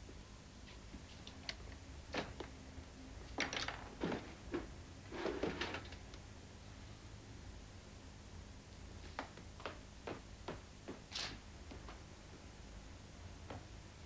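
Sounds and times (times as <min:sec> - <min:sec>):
knocks and clatters of objects: 0:03.3 - 0:06.0.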